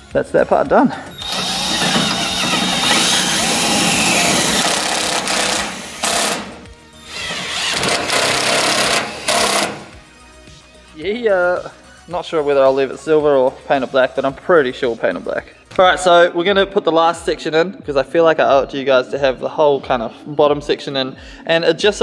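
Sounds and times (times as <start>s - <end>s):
power drill driving screws into metal: 1.1s - 9.9s.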